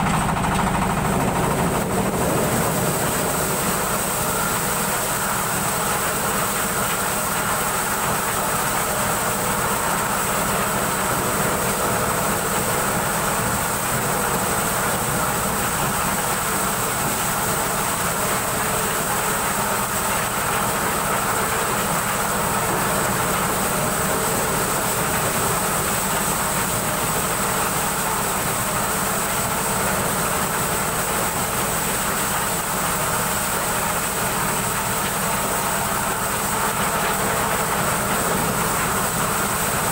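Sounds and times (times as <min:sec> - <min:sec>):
high mechanical whine: 0:00.0 - 0:07.2
corn sheller machine running: 0:00.0 - 0:39.9.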